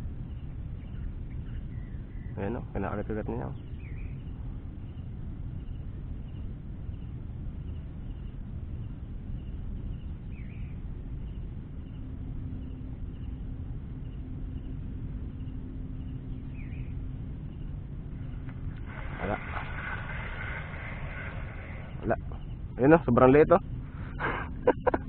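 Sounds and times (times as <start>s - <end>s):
faint low hum: 0.0s - 25.0s
steady low rumble: 0.0s - 25.0s
faint repeated high chirping: 3.4s - 22.7s
bird call: 15.4s - 17.0s, 17.6s - 22.6s.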